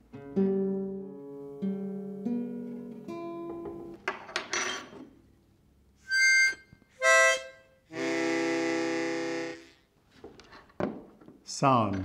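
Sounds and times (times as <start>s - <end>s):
harmonica playing: 6.0s - 9.9s.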